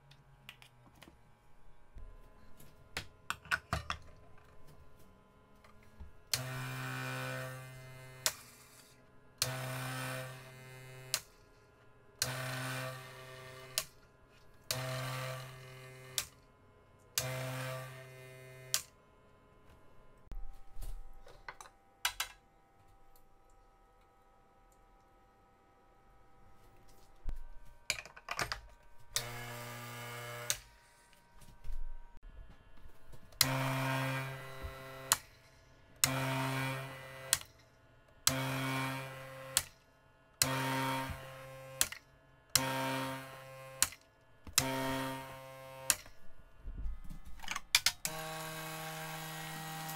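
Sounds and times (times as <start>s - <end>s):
portafilter clicks and clatter: 47.4s - 48.2s.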